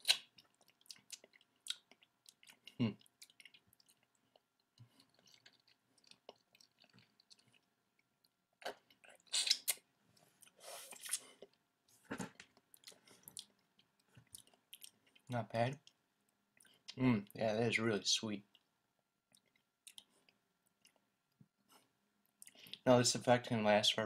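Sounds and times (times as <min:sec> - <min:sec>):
soft mouth clicks: 0:00.0 - 0:00.3, 0:08.6 - 0:09.8
person chewing lemon: 0:00.0 - 0:11.6, 0:12.4 - 0:17.0, 0:19.3 - 0:21.1.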